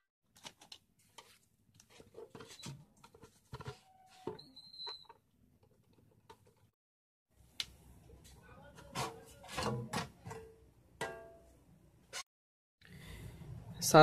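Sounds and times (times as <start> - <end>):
high squeak: 3.8 - 5.1.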